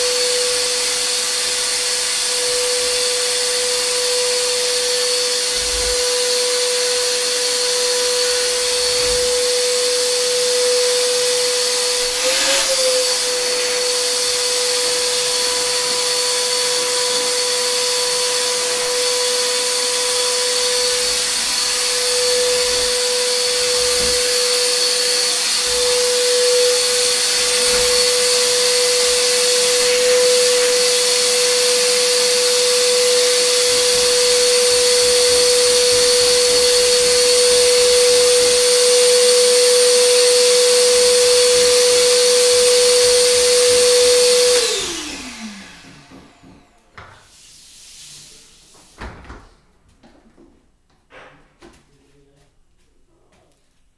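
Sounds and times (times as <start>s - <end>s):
electric motor whine: 0.0s - 46.8s
airflow hiss: 47.2s - 49.2s.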